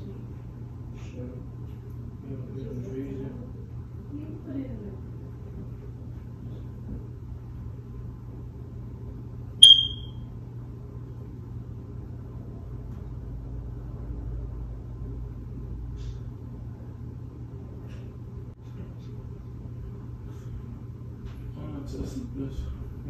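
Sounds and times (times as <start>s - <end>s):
low room tone hum: 0.0s - 23.0s
high-pitched electronic beep: 9.6s - 10.1s.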